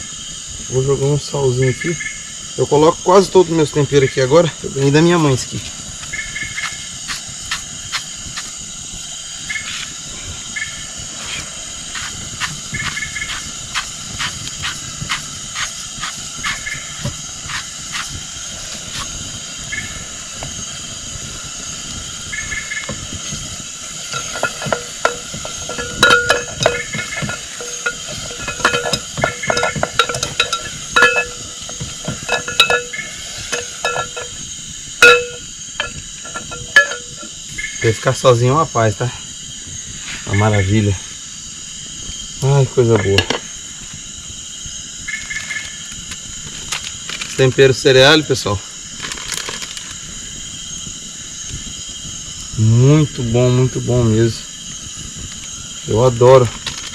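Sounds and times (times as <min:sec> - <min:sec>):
oil sizzling with crackling pops: 0:02.4 - 0:56.9
clicks and knocks: 0:24.1 - 0:34.4.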